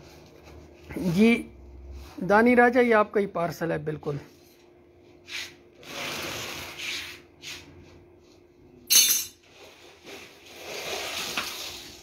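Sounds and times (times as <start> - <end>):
paper rustling and rubbing: 5.3 - 7.7.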